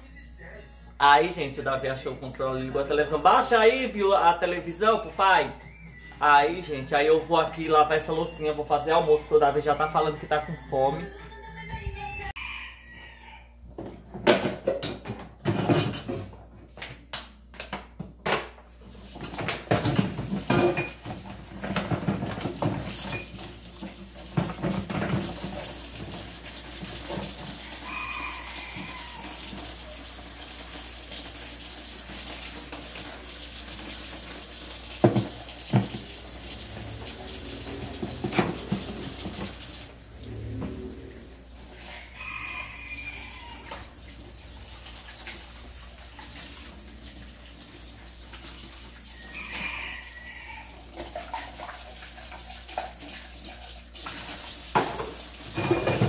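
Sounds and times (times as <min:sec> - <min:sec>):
tap water running into sink: 0:18.9 - 0:41.1, 0:42.4 - 0:56.0
plastic dishes clattering: 0:19.2 - 0:25.7, 0:54.8 - 0:56.0.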